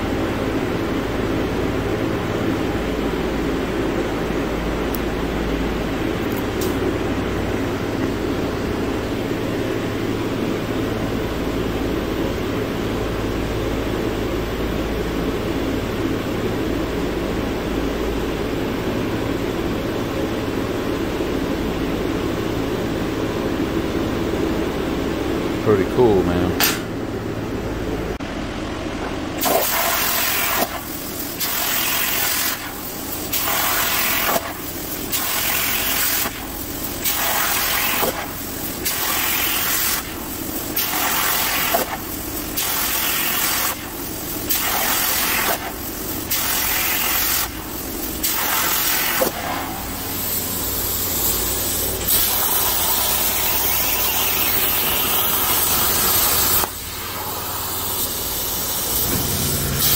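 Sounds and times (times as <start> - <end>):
short click: 26.6 - 26.9
plasma cutter hissing: 29.4 - 59.9.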